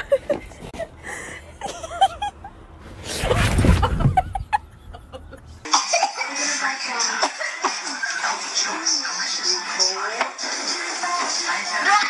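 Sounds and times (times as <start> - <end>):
woman laughing: 0.0 - 2.5, 3.6 - 6.2
microphone rumbling: 3.0 - 4.6.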